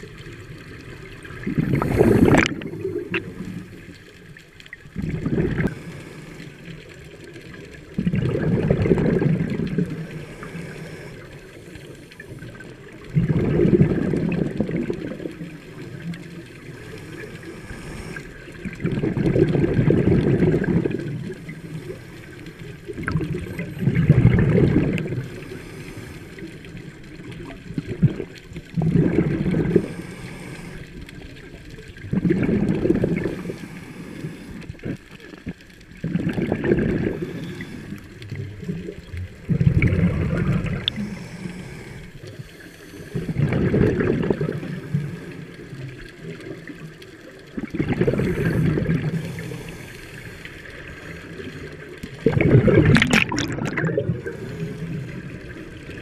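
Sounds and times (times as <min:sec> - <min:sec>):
gurgling rush of bubbles: 0:00.0 - 0:56.0
diver breathing through regulator: 0:01.6 - 0:03.8, 0:05.2 - 0:06.8, 0:09.1 - 0:12.6, 0:16.7 - 0:18.6, 0:25.2 - 0:26.6, 0:29.4 - 0:31.1, 0:33.0 - 0:35.0, 0:36.8 - 0:38.5, 0:39.5 - 0:43.8, 0:48.0 - 0:51.4, 0:53.3 - 0:55.6.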